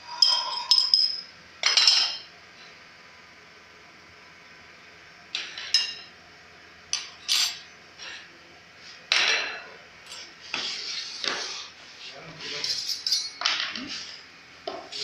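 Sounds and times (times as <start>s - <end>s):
spoon clinking against bowl: 0.1s - 2.2s.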